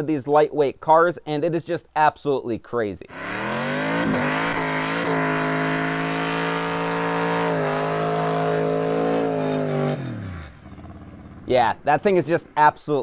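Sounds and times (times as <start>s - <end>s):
car engine high revs: 3.1s - 11.4s.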